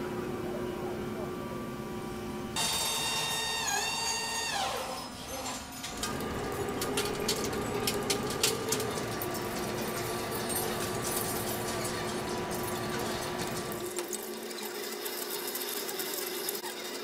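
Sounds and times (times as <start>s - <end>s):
lathe humming: 5.9s - 13.8s.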